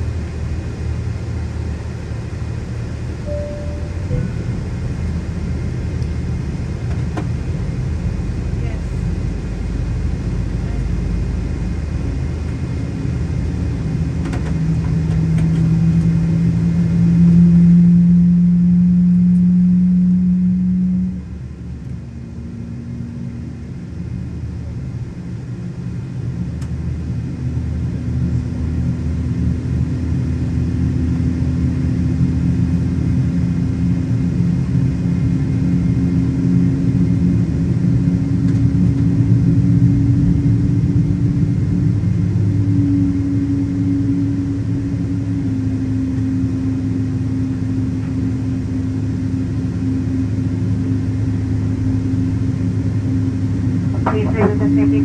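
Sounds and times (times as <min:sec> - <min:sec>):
jet engine low rumble: 0:00.0 - 0:55.0
rising engine whine: 0:00.0 - 0:55.0.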